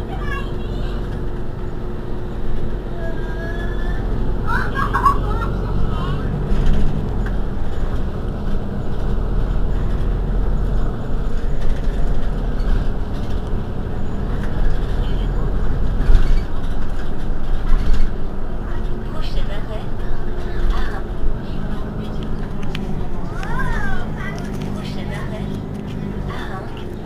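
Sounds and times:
bus engine idling: 0:00.0 - 0:27.0
faint voices: 0:13.8 - 0:27.0.

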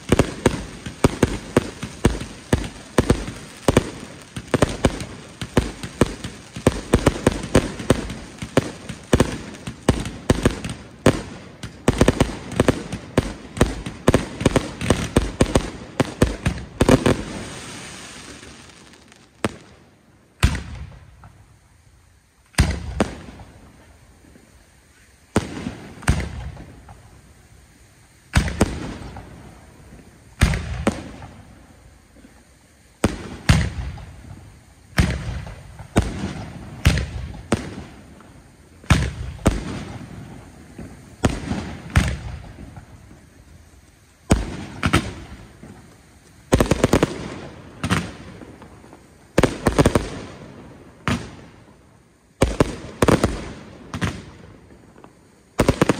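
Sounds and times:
firework shells bursting: 0:00.0 - 0:21.5, 0:33.0 - 0:51.8.

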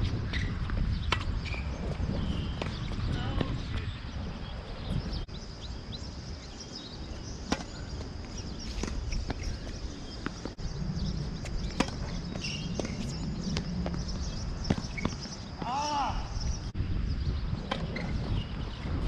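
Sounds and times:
tennis ball bouncing: 0:07.5 - 0:07.7.

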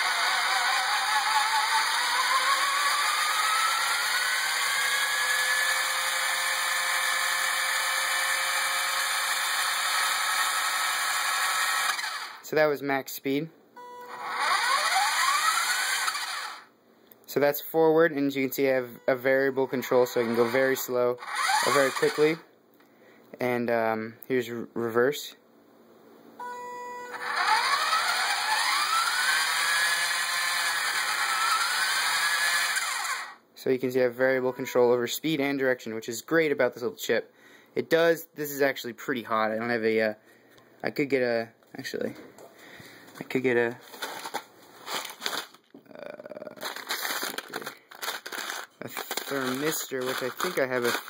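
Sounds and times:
electric motor whining: 0:00.0 - 0:12.4, 0:14.0 - 0:16.7, 0:19.7 - 0:22.4, 0:27.0 - 0:33.4
steady electric whine: 0:18.2 - 0:22.4.

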